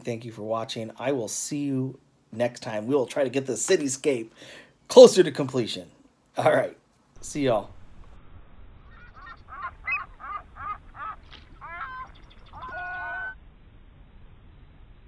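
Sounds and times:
nasal quack-like calls: 8.9 - 13.4.

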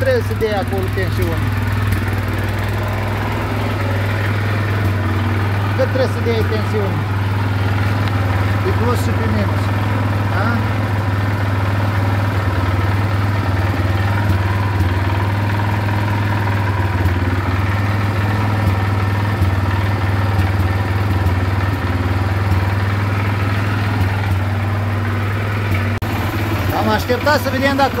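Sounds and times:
atv engine idling: 0.0 - 28.0.

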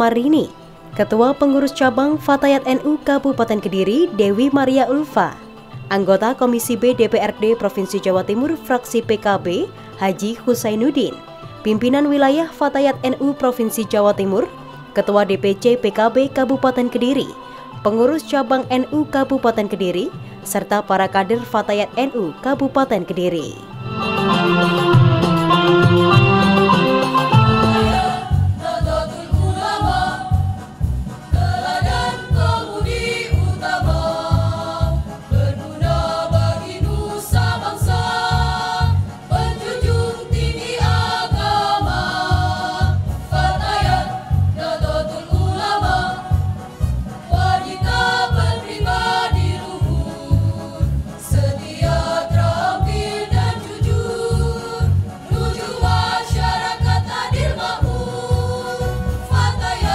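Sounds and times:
women's choir singing: 27.4 - 46.6, 47.2 - 59.9.

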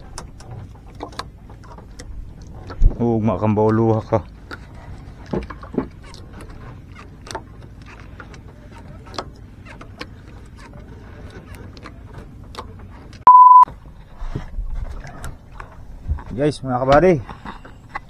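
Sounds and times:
censor bleep: 13.2 - 13.7.

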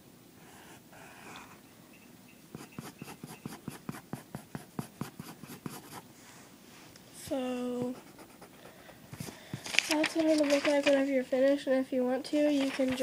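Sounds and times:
pencil scratching on paper: 2.5 - 6.0, 7.9 - 8.6.

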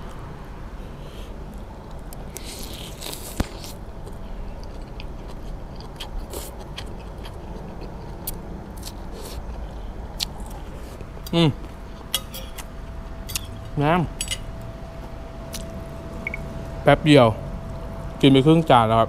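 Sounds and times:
chewing: 1.9 - 12.7.

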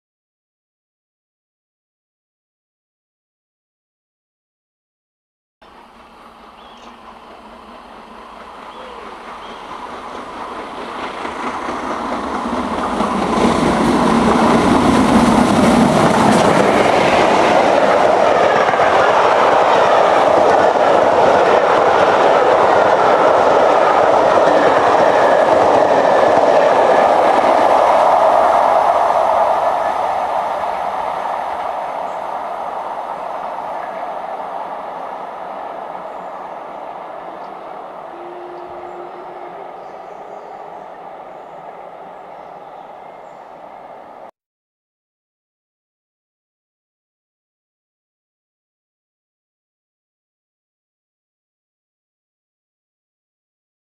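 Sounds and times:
coach wheels on rails: 5.6 - 44.3
steam train passing: 5.6 - 44.3.

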